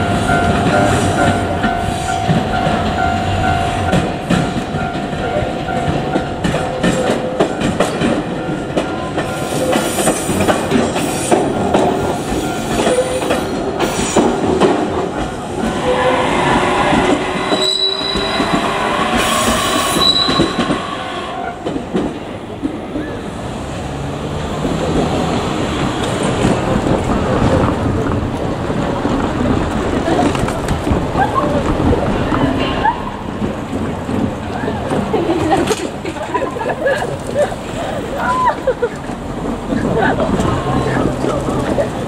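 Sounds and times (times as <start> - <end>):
wheels clicking over rail joints: 0.0 - 15.8, 17.4 - 42.0
train running past: 0.0 - 42.0
high-pitched wheel squeals: 15.7 - 21.6.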